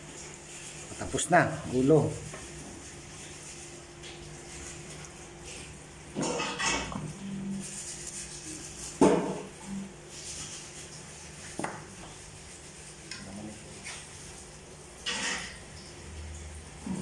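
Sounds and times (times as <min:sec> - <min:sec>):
light scraping of metal: 0:15.0 - 0:15.6.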